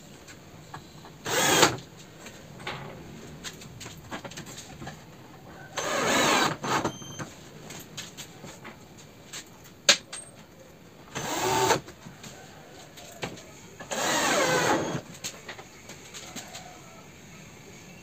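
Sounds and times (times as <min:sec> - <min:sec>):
cordless drill driving screws: 0:01.2 - 0:01.8, 0:05.8 - 0:06.9, 0:11.2 - 0:11.8, 0:13.9 - 0:15.0.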